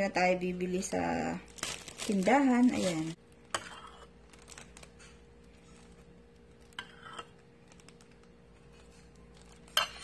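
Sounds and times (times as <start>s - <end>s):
metal spoon scraping a bowl: 3.5s - 4.2s, 6.7s - 7.4s, 8.7s - 10.0s.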